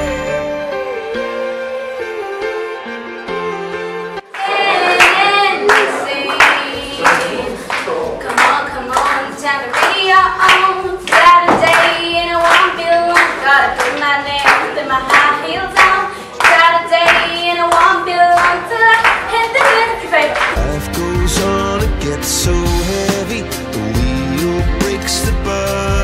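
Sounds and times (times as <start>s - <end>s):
hand clapping beat: 4.4s - 21.2s
woman singing into microphone: 4.8s - 20.6s.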